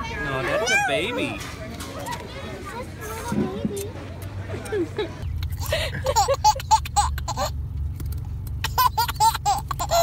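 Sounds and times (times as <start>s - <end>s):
baby laughing: 5.5s - 7.6s, 8.6s - 10.0s.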